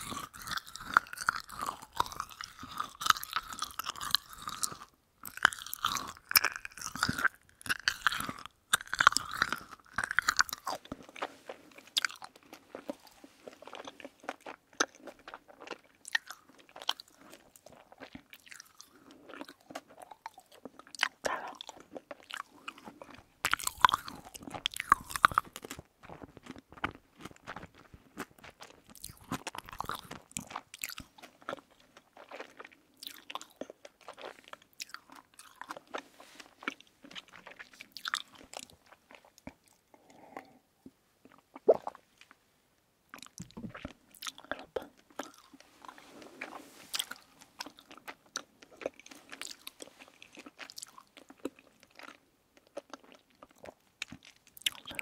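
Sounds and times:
chewing soft candy: 0:00.0 - 0:42.4, 0:43.0 - 0:55.0
wet sticky mouth clicks: 0:41.5 - 0:42.0.

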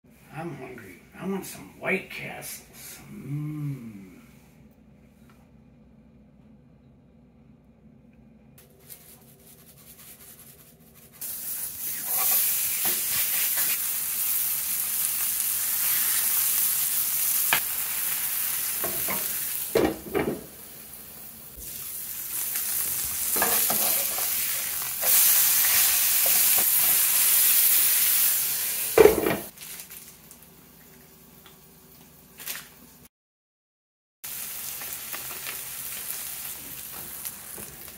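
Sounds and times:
meat and onions sizzling: 0:11.0 - 0:31.8, 0:34.2 - 0:37.9.

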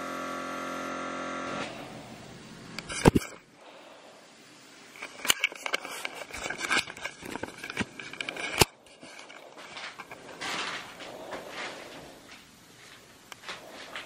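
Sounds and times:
rustling and scraping handling: 0:04.8 - 0:14.0.

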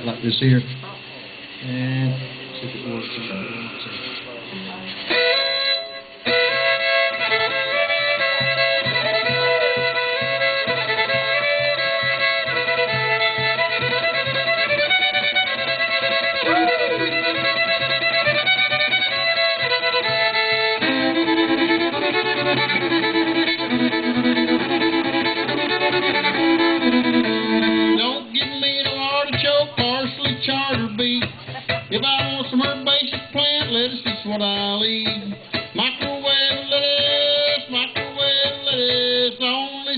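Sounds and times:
steady low hum: 0:00.0 - 0:33.4
fiddle being bowed: 0:04.9 - 0:39.2.

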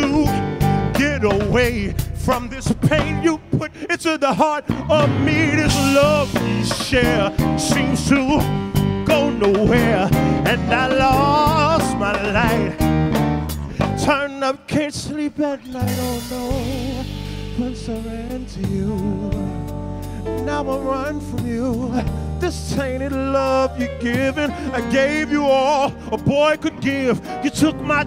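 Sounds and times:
man singing: 0:00.0 - 0:13.0, 0:13.8 - 0:28.0
drum fill: 0:00.0 - 0:14.1, 0:15.8 - 0:21.5
soul band playing: 0:00.0 - 0:28.0
cymbal crash: 0:01.6 - 0:04.0.

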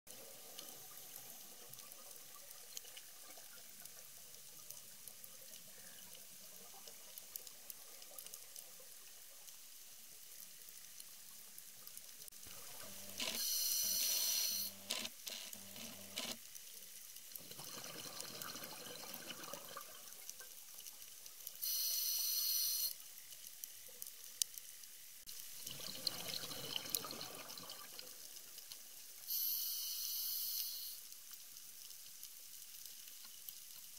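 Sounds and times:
faint underwater hiss: 0:00.1 - 0:14.8, 0:16.6 - 0:33.8
small underwater clicks: 0:00.5 - 0:33.9
exhaled bubbles rushing: 0:17.4 - 0:20.2, 0:25.6 - 0:28.1.

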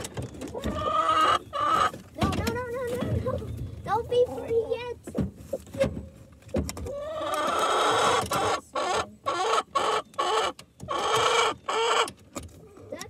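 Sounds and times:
hen squawking: 0:00.6 - 0:01.9.

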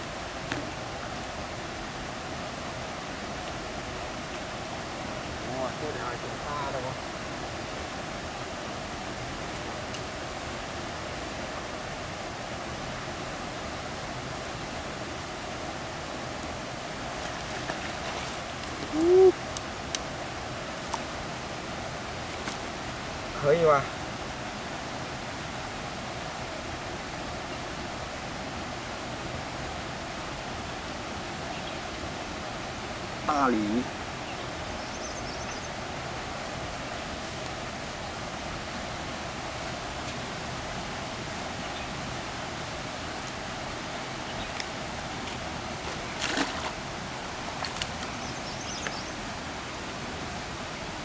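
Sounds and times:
flowing water rushing: 0:00.0 - 0:51.0
water splash: 0:45.8 - 0:48.0.

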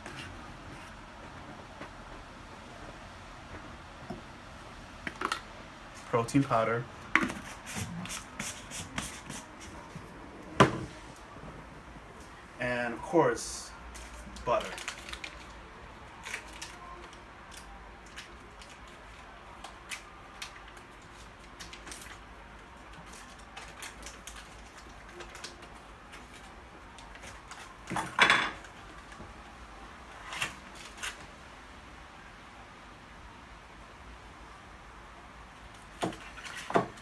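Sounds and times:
foil wrapper crinkling: 0:13.9 - 0:27.8.

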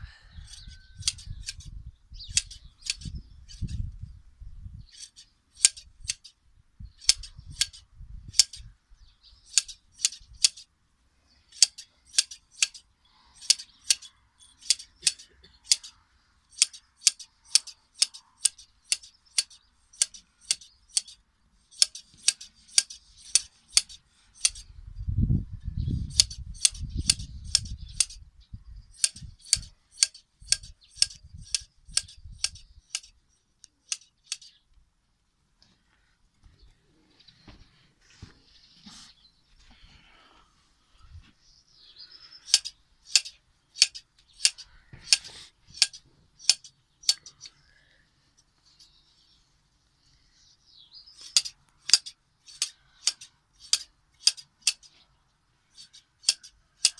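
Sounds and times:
shears snipping fleece: 0:00.5 - 0:01.7, 0:02.3 - 0:03.8, 0:04.9 - 0:06.4, 0:11.6 - 0:12.8, 0:16.6 - 0:24.7, 0:26.1 - 0:28.2, 0:29.0 - 0:33.2, 0:42.5 - 0:47.5, 0:51.2 - 0:55.0, 0:55.7 - 0:56.9.

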